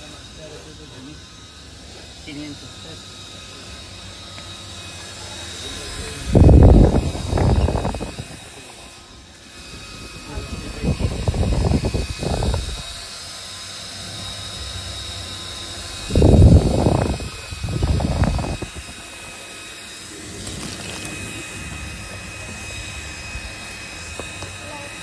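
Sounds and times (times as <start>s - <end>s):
faint high whine: 0.0s - 25.0s
steady electronic whirring: 0.0s - 25.0s
loud low rumbles: 15.9s - 19.0s.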